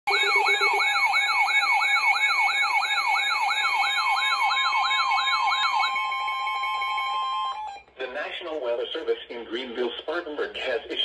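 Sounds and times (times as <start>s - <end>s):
weather alert radio alarms: 0.1s - 7.6s
siren-like rising sweep: 0.1s - 7.8s
steady high warning tones: 0.1s - 7.8s.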